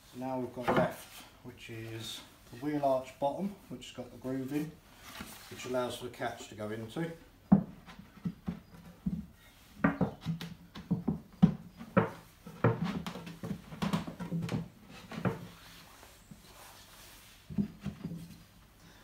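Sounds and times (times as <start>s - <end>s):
plywood scraping: 0.2s - 2.2s, 7.5s - 18.6s.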